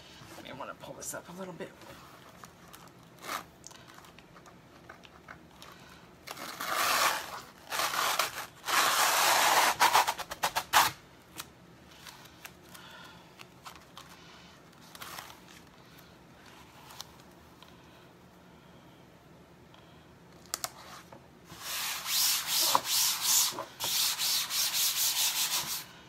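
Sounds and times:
transfer sheet crinkling and peeling: 13.4s - 17.4s.

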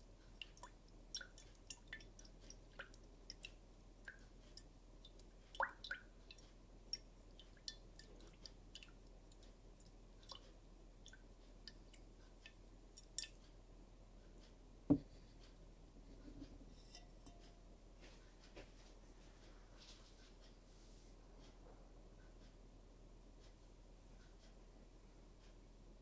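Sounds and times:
small ticks and clicks in swirled glass: 0.0s - 13.6s, 16.7s - 17.6s.

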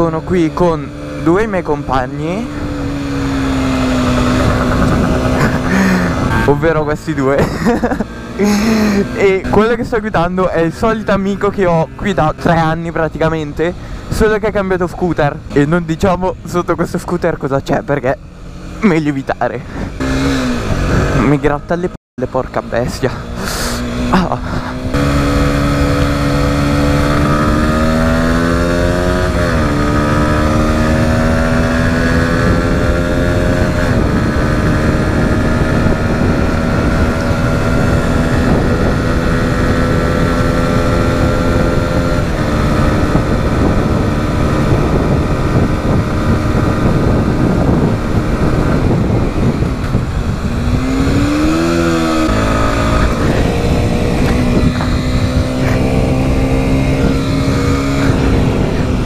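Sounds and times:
motorcycle engine shifting gears: 0.0s - 14.3s, 18.2s - 59.0s
wind on microphone: 2.2s - 6.5s, 19.7s - 21.3s, 23.4s - 59.0s.

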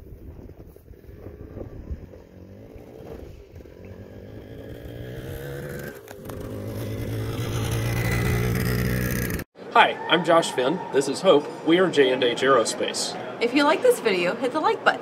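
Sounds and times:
wind noise on microphone: 0.0s - 5.1s
engine running: 1.2s - 9.4s.

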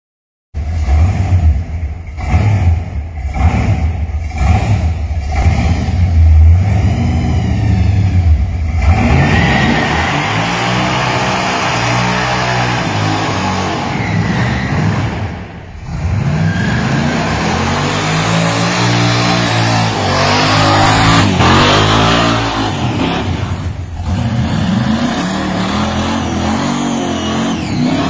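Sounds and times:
car engine revving: 0.6s - 28.0s.

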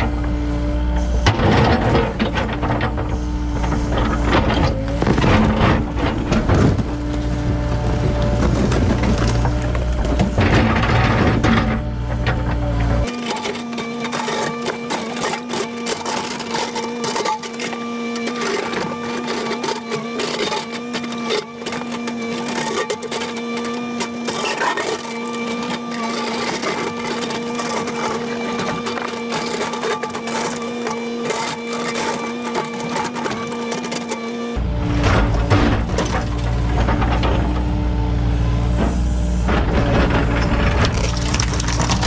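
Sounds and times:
excavator engine droning: 0.0s - 42.0s
bucket breaking concrete: 40.6s - 42.0s.

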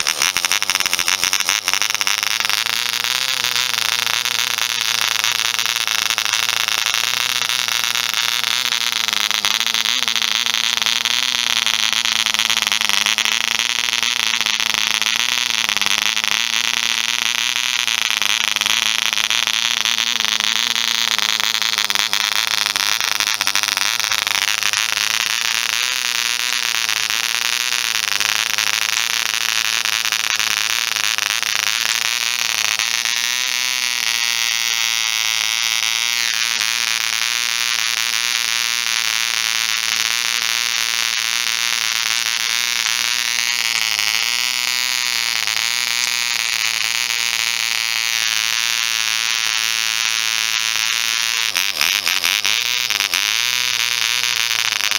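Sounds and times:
model engine high-pitched buzz: 0.0s - 54.9s.

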